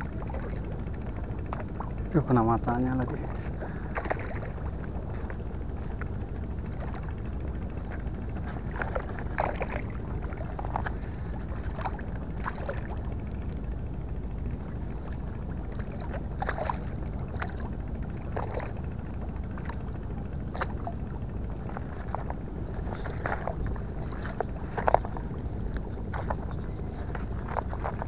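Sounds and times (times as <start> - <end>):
wind rumble on microphone: 0.0 - 28.0
small waves lapping against concrete: 2.2 - 6.1, 7.8 - 13.1, 15.6 - 17.7, 21.6 - 28.0.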